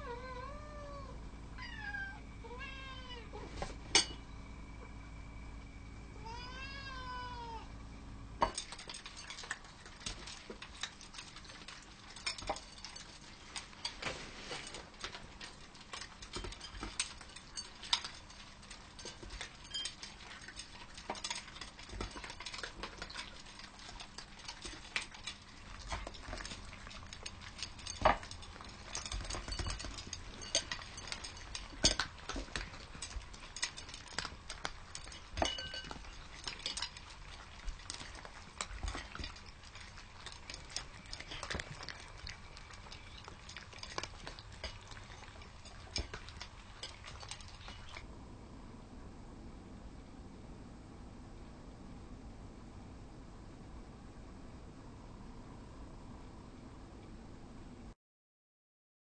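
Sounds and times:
cats eating from metal bowls: 8.4s - 48.1s.

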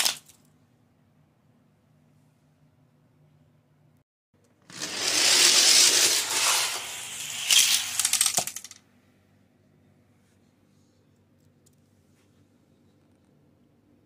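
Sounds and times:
toy karts rattling on plastic track: 4.7s - 8.8s.

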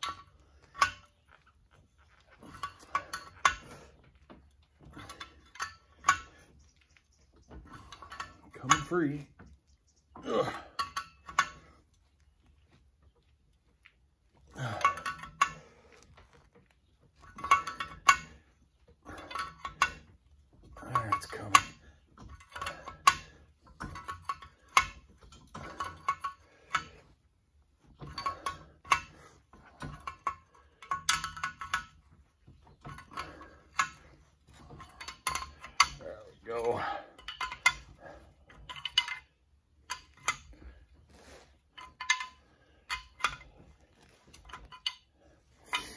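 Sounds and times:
wrench clicking and clinking: 14.6s - 16.4s, 28.0s - 36.1s, 36.8s - 40.8s, 41.8s - 45.9s.

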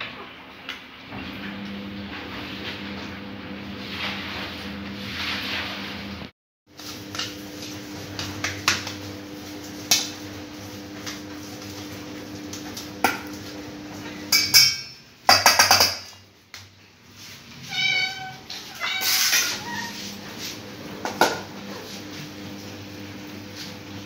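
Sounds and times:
cat meowing: 17.7s - 20.0s
potato masher scraping metal bowl: 18.5s - 22.2s.

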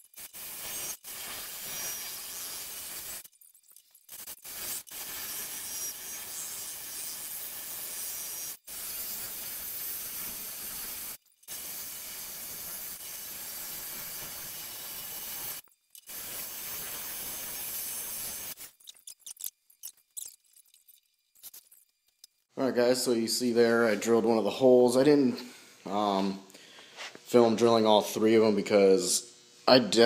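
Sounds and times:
hole saw grinding through glass: 0.0s - 3.3s, 4.1s - 20.4s.

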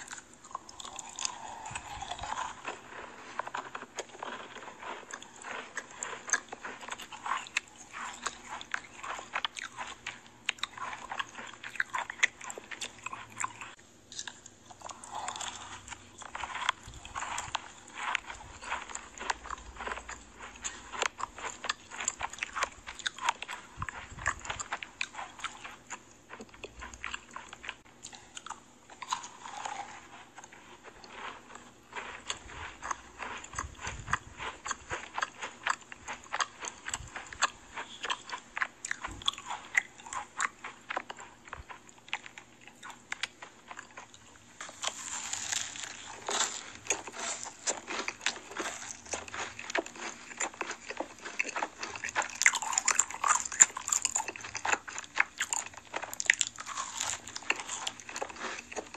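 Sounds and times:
chewing crunchy sweets: 0.0s - 58.9s.

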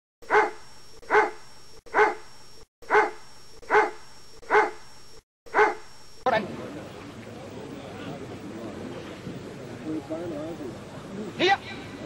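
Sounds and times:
dog barking: 0.2s - 4.8s, 5.5s - 5.9s.

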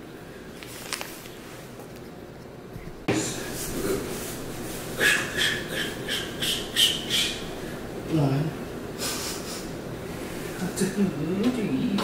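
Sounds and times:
plastic bag crinkling: 0.6s - 1.4s.

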